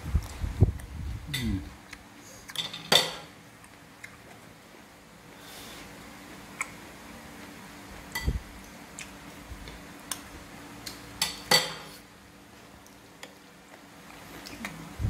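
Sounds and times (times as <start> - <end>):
cutlery clinking on plates: 2.5 - 3.3, 11.2 - 12.0.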